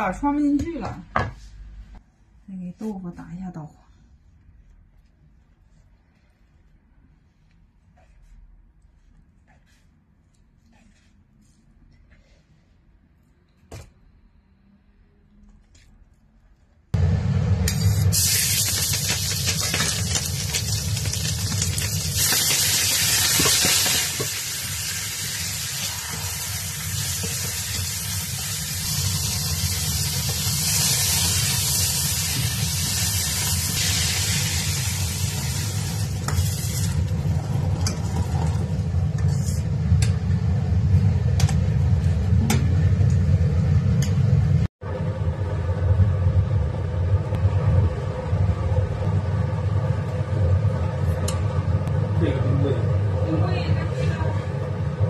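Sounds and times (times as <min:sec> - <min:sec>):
vegetables sizzling in hot oil: 0:17.7 - 0:37.2.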